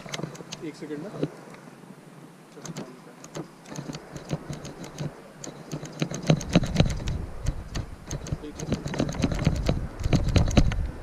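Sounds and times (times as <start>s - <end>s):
light clicks and ticks: 0.0s - 1.6s, 2.5s - 11.0s.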